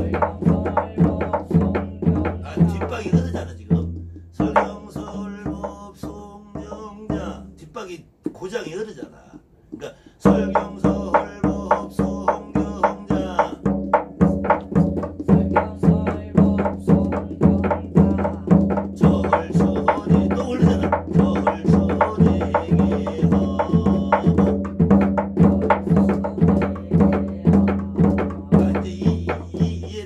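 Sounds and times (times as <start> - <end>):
drum beaten steadily: 0.0 - 8.4, 9.3 - 30.0.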